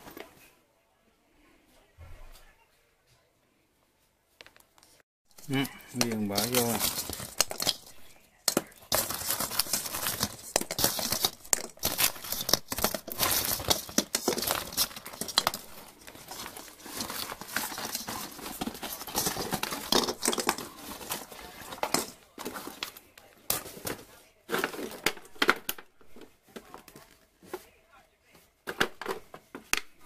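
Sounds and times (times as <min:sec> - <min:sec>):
plastic packaging crinkling: 0:05.3 - 0:27.3.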